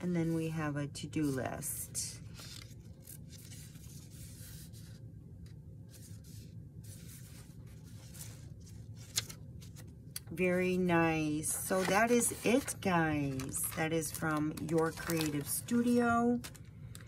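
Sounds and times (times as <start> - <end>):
steady low hum: 0.0 - 17.0
paper pages rustling: 2.2 - 5.0, 5.9 - 10.0, 11.5 - 17.0.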